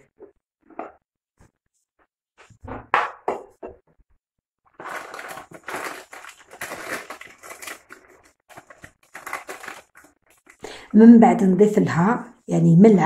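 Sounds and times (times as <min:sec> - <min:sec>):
crackling rustle: 0:04.8 - 0:10.6.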